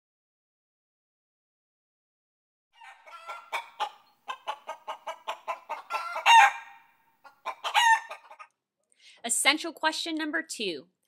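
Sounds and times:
chicken squawk: 0:02.8 - 0:08.5
chicken clucking: 0:02.8 - 0:08.6.

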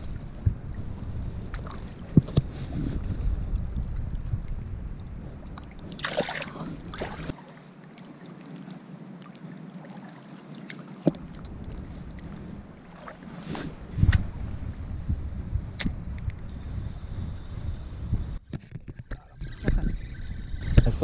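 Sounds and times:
water sloshing: 0:00.0 - 0:03.2, 0:05.5 - 0:14.4
water lapping: 0:00.0 - 0:14.7
wind rumbling on microphone: 0:00.0 - 0:21.0
fish splashing: 0:05.9 - 0:07.6.

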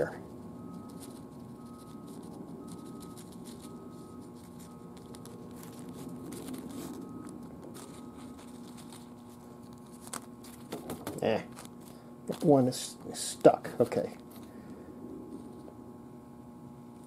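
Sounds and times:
low room hum: 0:00.0 - 0:17.0
paper rustling and tapping: 0:09.7 - 0:11.7.

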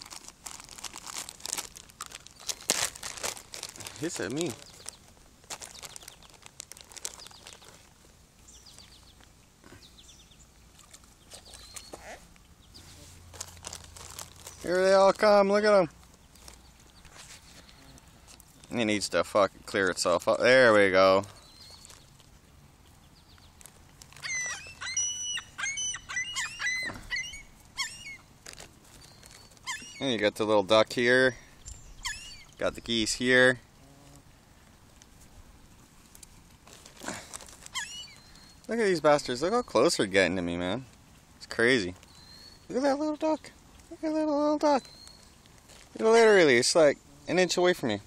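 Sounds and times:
birds calling: 0:00.0 - 0:34.9, 0:35.5 - 0:48.0
bird chirps: 0:11.2 - 0:13.0, 0:21.3 - 0:22.2, 0:24.2 - 0:28.3, 0:28.9 - 0:30.2, 0:31.5 - 0:33.0, 0:37.7 - 0:38.7, 0:42.0 - 0:43.5, 0:44.7 - 0:45.4.

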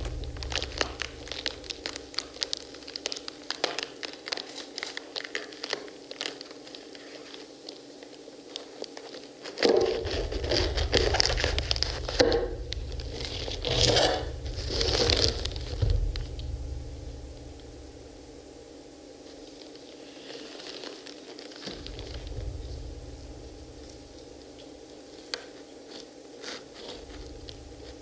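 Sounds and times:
deep rumble: 0:00.0 - 0:03.3, 0:09.8 - 0:19.6, 0:21.7 - 0:25.0, 0:26.9 - 0:28.0
crunching and tearing of rind: 0:00.0 - 0:16.5, 0:19.2 - 0:28.0.

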